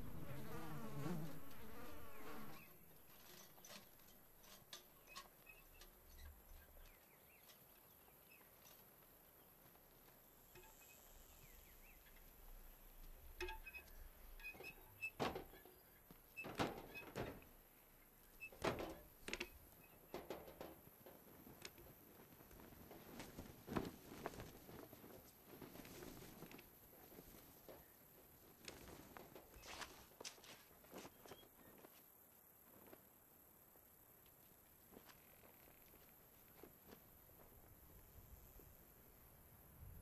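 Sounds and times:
footsteps on grass: 0:29.6 - 0:31.5.

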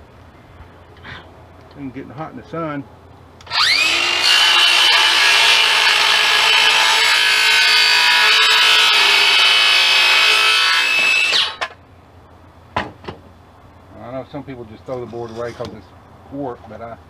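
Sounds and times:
circular saw cutting wood: 0:03.4 - 0:11.8.

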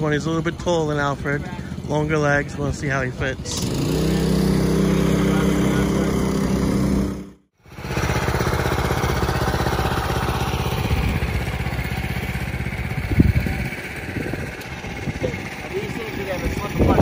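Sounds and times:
go-kart engine running: 0:00.0 - 0:17.0.

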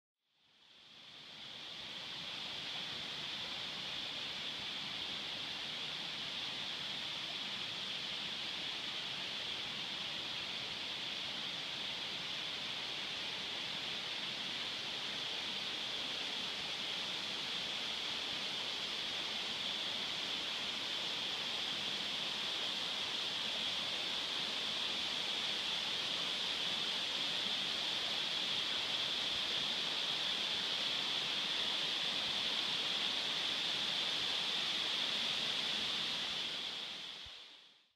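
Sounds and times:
waterfall rushing: 0:12.0 - 0:37.2.

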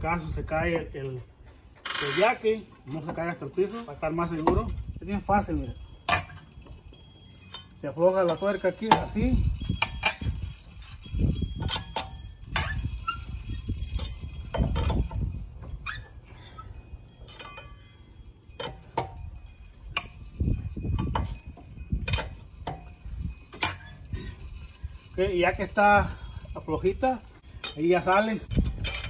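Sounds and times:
low rumbles: 0:00.0 - 0:29.0
lug wrench clicking and rattling: 0:06.0 - 0:25.8.

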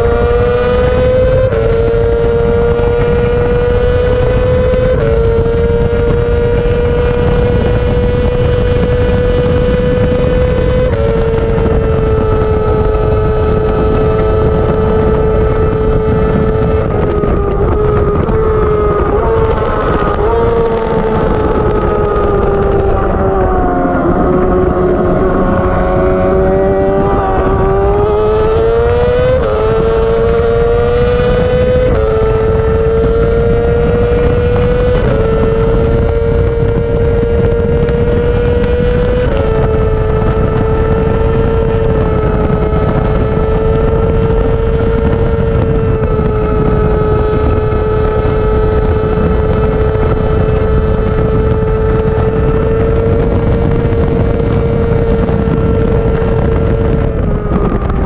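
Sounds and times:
motorcycle engine at high revs: 0:00.0 - 0:58.0
wind rush: 0:00.0 - 0:58.0
gear upshifts: 0:10.0 - 0:58.0.

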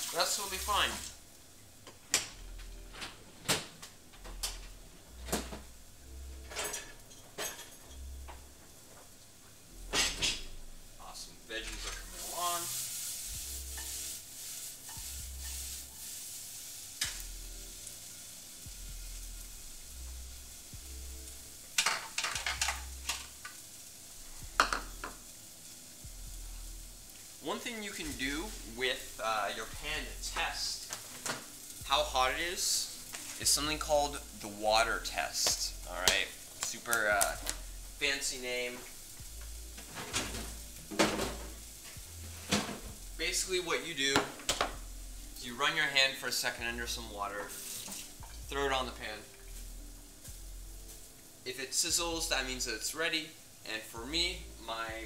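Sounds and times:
utensils and dishes knocking: 0:21.8 - 0:23.2, 0:24.6 - 0:25.2.

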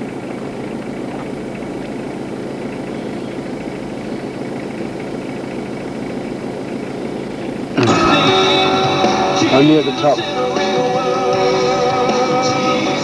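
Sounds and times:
constant hiss: 0:00.0 - 0:13.0
vehicle engine idling: 0:00.0 - 0:13.0.

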